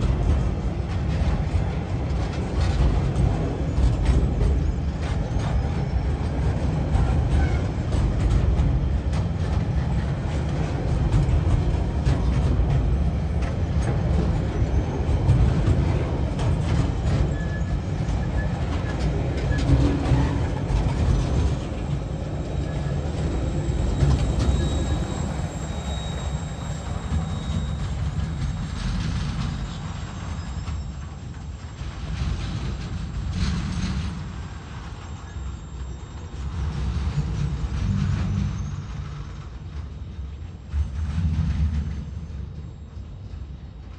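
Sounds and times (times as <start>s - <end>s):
wheels clicking over rail joints: 0.0s - 42.8s
train wheels rumbling on rail: 0.0s - 43.9s
high-pitched wheel squeal: 16.7s - 31.3s, 34.9s - 39.5s.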